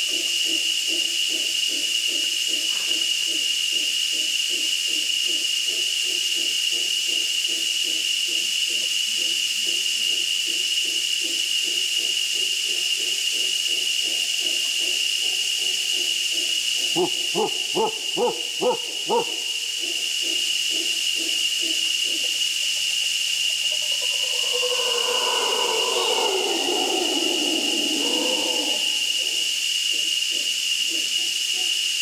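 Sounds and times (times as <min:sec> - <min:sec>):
high insect drone: 0:00.0 - 0:32.0
howler monkeys grunting and howling: 0:12.4 - 0:22.6, 0:23.4 - 0:31.8.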